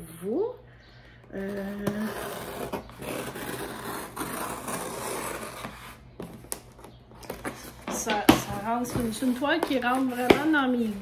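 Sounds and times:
cardboard rubbing and scraping: 0:01.6 - 0:06.4, 0:07.2 - 0:11.0.

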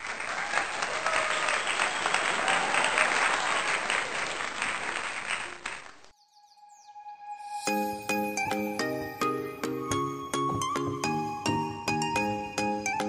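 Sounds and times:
crowd clapping: 0:00.0 - 0:06.1.

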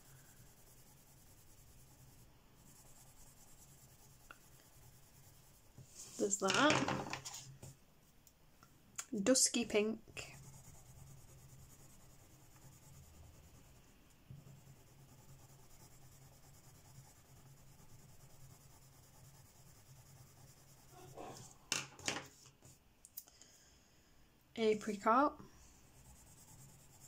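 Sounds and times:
coloured pencil shading on paper: 0:00.0 - 0:06.6, 0:09.3 - 0:21.6, 0:25.7 - 0:27.0.

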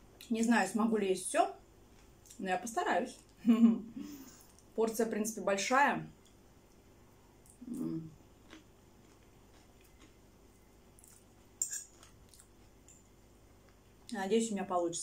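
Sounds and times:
quiet chewing: 0:06.2 - 0:13.8
fork scraping china plate: 0:11.6 - 0:12.1.

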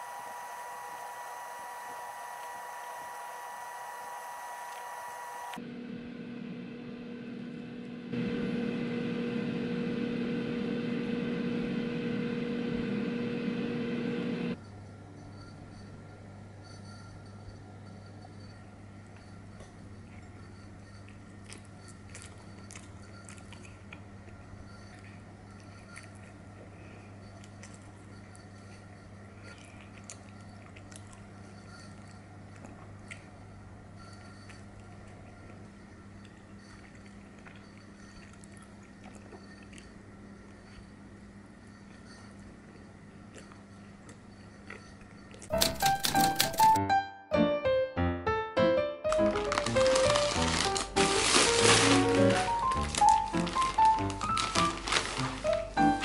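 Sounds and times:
machine hum: 0:00.0 - 0:14.6
steady low hum: 0:00.0 - 0:45.5
biting and chewing bread: 0:20.9 - 0:40.9, 0:43.1 - 0:46.8, 0:49.1 - 0:56.0
bread tearing crackles: 0:49.1 - 0:56.0.

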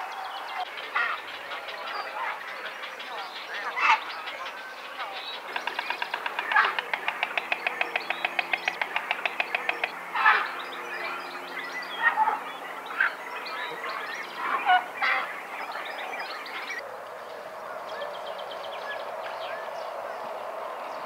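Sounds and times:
bird calls: 0:00.0 - 0:21.0
stork bill clattering: 0:05.5 - 0:09.9.

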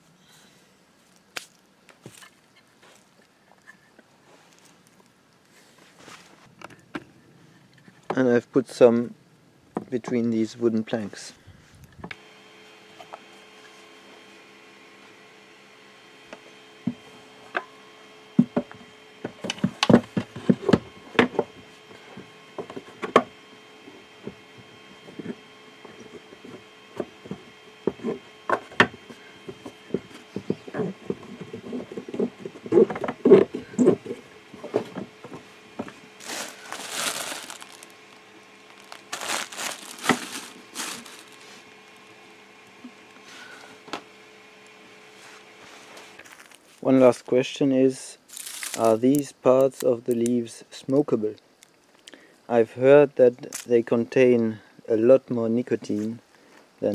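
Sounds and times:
faint steady hum: 0:00.0 - 0:56.9
crinkling: 0:29.4 - 0:42.2, 0:45.7 - 0:47.3, 0:48.3 - 0:49.9.

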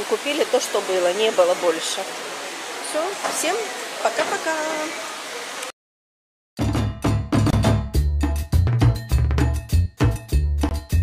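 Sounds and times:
bass line: 0:06.6 - 0:11.0.

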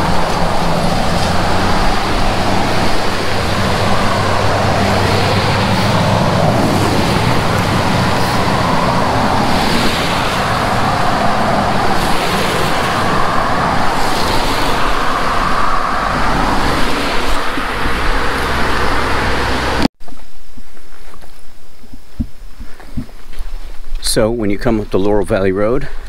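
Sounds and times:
cars passing: 0:00.0 - 0:19.9
creek rushing: 0:00.0 - 0:19.9.

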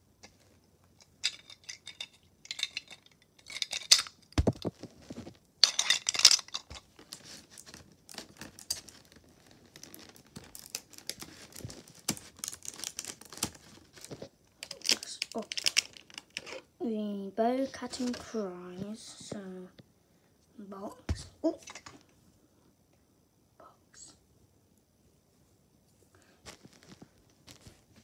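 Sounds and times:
plastic packaging crinkling: 0:01.2 - 0:16.6.

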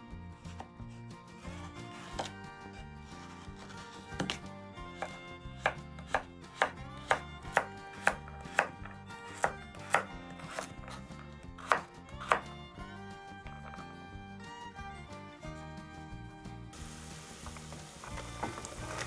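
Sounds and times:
background music: 0:00.0 - 0:19.0
knife chopping on cutting board: 0:01.5 - 0:02.4, 0:03.2 - 0:12.6, 0:13.4 - 0:14.0.

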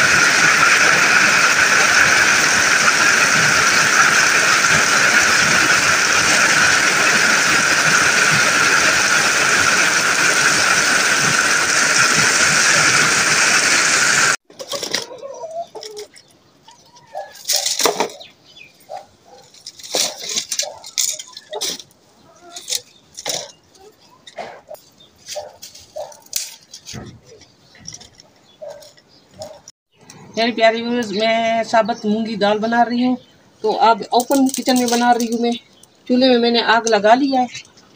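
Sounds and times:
heavy rain: 0:00.0 - 0:14.4.

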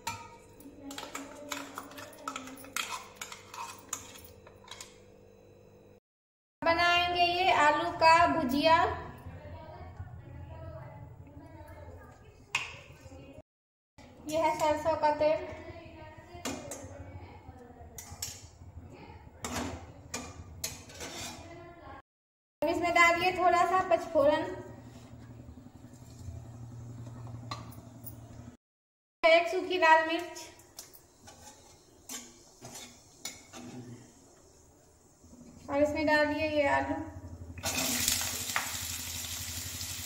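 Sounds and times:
spoon scraping steel jar: 0:01.0 - 0:04.9, 0:20.8 - 0:21.5, 0:30.8 - 0:33.8.

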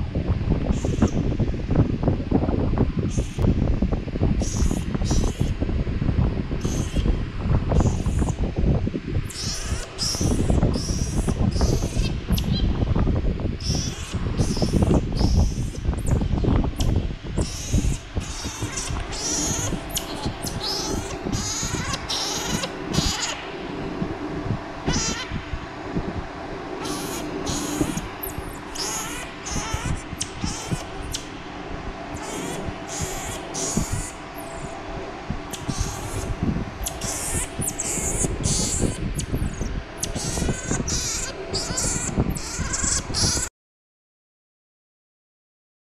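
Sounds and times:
baby monkey squeaky calls: 0:09.3 - 0:12.6, 0:13.6 - 0:16.1, 0:16.8 - 0:23.4, 0:24.9 - 0:25.4, 0:26.8 - 0:28.0, 0:28.8 - 0:31.3, 0:32.1 - 0:34.5, 0:35.5 - 0:36.2, 0:36.8 - 0:43.5.

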